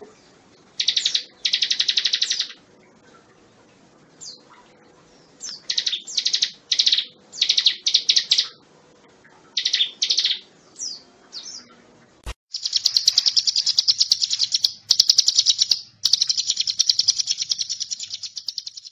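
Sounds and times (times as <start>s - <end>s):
bird chirping: 0.0s - 2.6s, 4.2s - 8.6s, 9.4s - 11.9s, 12.5s - 18.9s
fast high bird trill: 12.5s - 18.9s.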